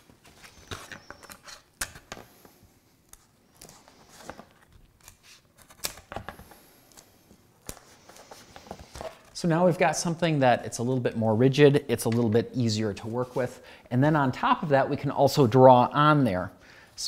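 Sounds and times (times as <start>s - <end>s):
tape pulled and torn: 5.0s - 6.2s.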